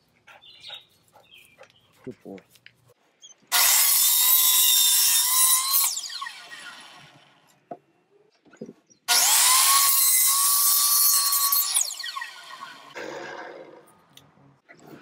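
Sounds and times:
miter saw cutting pipe: 3.5 - 7.4, 9.1 - 13.0
saw blade winding down: 3.5 - 7.4, 9.1 - 13.0.

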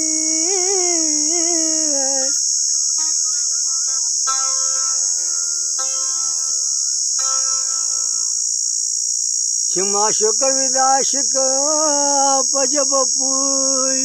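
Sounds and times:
man singing a held note: 0.0 - 4.0, 9.7 - 14.0
high insect drone: 0.0 - 14.0.

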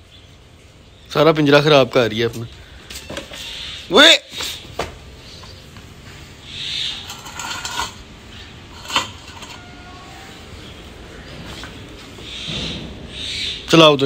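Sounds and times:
metal dog bowl clink: 8.7 - 9.7
soft high-pitched calls: 9.5 - 10.8.

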